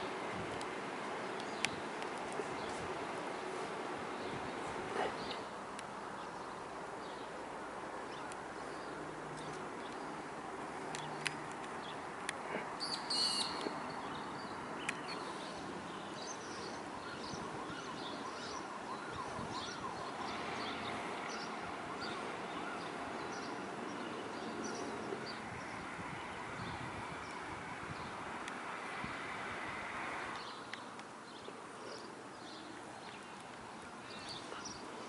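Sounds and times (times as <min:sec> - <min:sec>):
birds chirping and calling: 0:12.6 - 0:27.4, 0:30.4 - 0:35.0.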